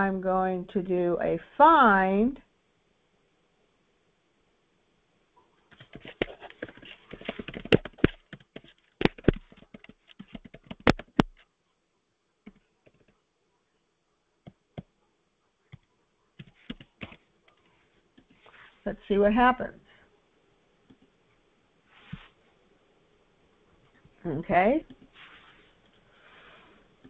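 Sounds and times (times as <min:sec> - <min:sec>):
computer keyboard typing: 0:05.7 - 0:11.4, 0:16.4 - 0:17.2.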